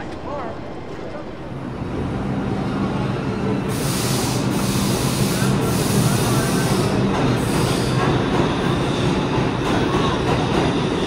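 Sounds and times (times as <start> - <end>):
subway train rumble: 0.0 - 11.0
train hiss: 3.5 - 10.7.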